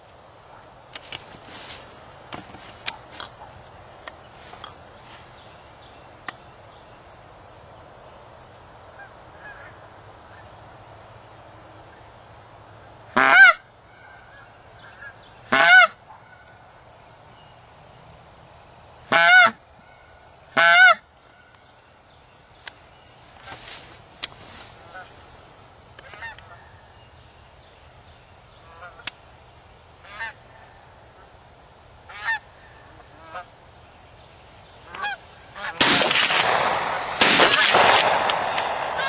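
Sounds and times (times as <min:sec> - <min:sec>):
faint steady hiss: 0:00.0 - 0:39.0
goose honking: 0:13.2 - 0:13.6, 0:15.0 - 0:16.0, 0:19.1 - 0:19.6, 0:20.6 - 0:21.0, 0:32.1 - 0:32.4, 0:33.0 - 0:33.5, 0:34.9 - 0:36.0.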